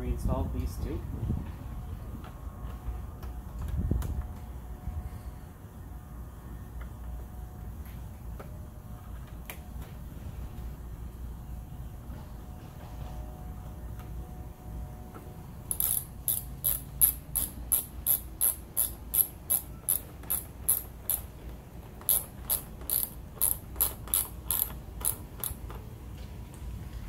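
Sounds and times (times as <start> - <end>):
hand ratchet clicking: 15.7 - 25.8.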